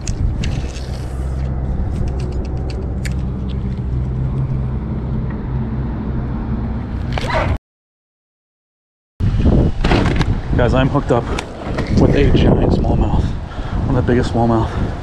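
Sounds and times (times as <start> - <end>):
low rumble with hum: 0.0 - 7.6.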